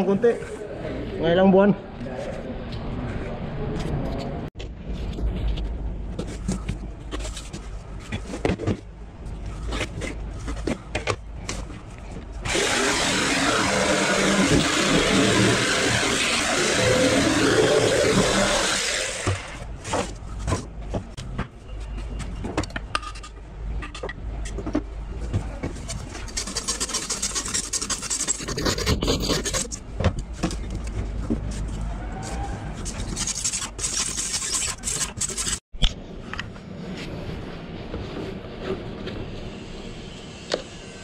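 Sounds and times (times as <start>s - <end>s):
jigsaw cutting plywood: 12.5s - 19.6s.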